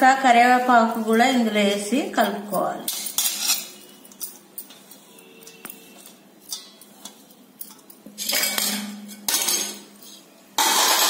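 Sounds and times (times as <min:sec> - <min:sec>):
steel dishes clinking: 0:02.2 - 0:11.0.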